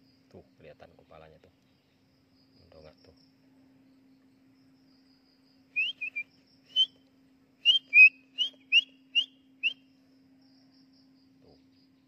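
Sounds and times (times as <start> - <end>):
short whistled notes: 5.8 - 7.0, 7.6 - 9.8.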